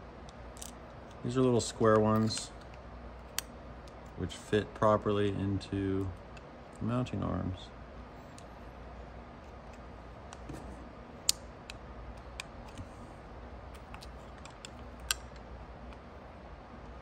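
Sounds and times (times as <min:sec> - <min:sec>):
small parts clicking and tapping: 0:00.2 - 0:01.2, 0:13.7 - 0:16.0.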